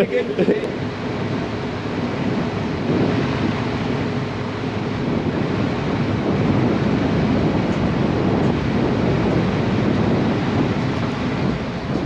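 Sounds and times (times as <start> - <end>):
boat engine running: 0.0 - 12.0
water washing along hull: 0.0 - 12.0
wind on microphone: 0.0 - 12.0.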